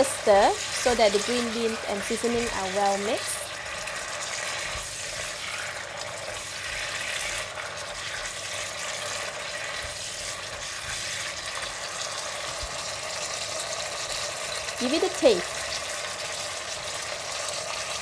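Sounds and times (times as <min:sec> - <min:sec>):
beans sizzling in a wok: 0:00.0 - 0:18.0
spatula scraping a wok: 0:03.5 - 0:11.7.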